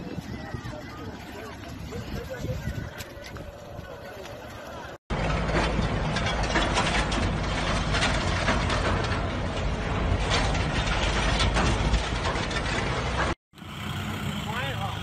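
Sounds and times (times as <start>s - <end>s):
truck engine rumble: 0.0s - 15.0s
container rattling and clanking: 5.1s - 13.4s.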